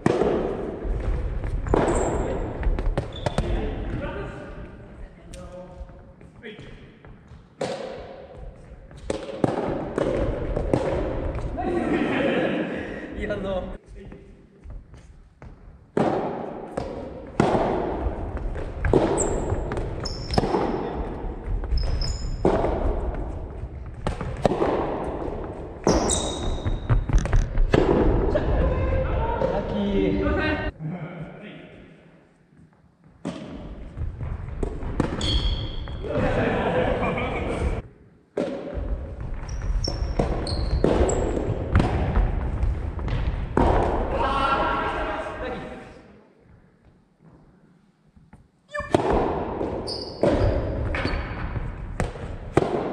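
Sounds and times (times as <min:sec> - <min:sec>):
sneakers squeaking on floor: 0:00.9 - 0:04.0, 0:18.6 - 0:27.7, 0:33.0 - 0:36.1, 0:38.8 - 0:43.2, 0:49.6 - 0:52.0
ball knocks echoing in gym: 0:38.4 - 0:44.1.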